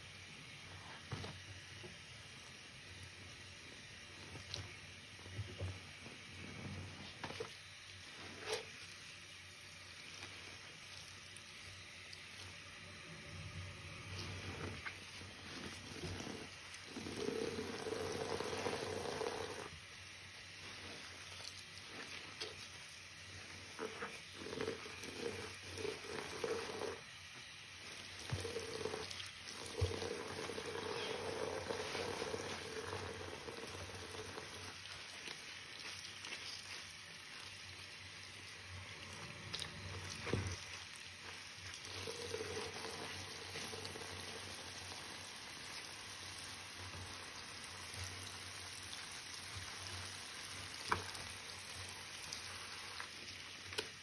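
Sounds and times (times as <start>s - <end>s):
sponge squishing: 5.5s - 9.2s, 9.8s - 54.0s
tap water running into sink: 15.6s - 19.7s, 28.0s - 35.3s.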